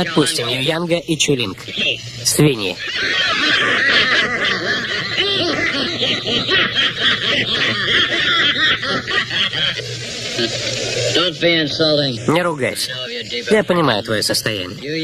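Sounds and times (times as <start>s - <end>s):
men laughing together: 2.8s - 11.2s.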